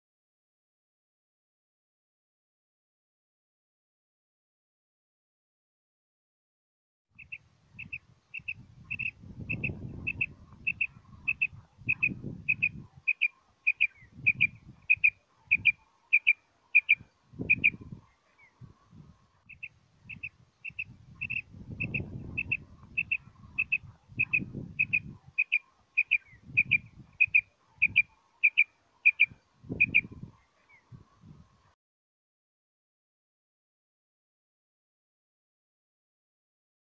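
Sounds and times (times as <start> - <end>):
quail calling: 7.2 - 17.8, 19.5 - 30.1.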